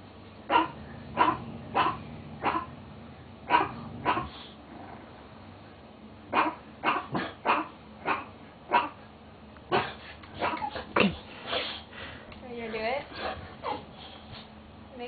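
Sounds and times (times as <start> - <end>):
sharp woof-like barks: 0.5 - 2.7, 3.5 - 4.4, 6.4 - 9.0.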